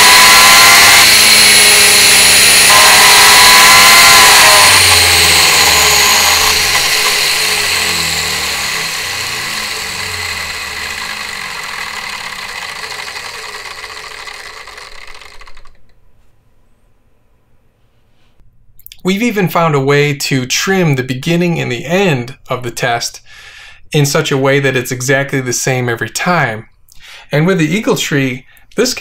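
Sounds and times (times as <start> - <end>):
electric motor whining: 0.0 - 15.8.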